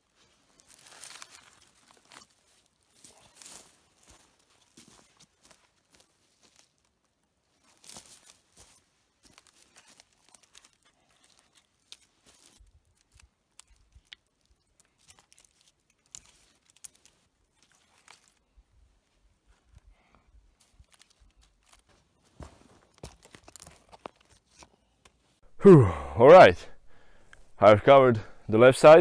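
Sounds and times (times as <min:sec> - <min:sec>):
rustle: 0:00.0 - 0:06.9, 0:07.5 - 0:19.8
wooden poles crackling and knocking: 0:07.8 - 0:18.4, 0:20.6 - 0:25.2.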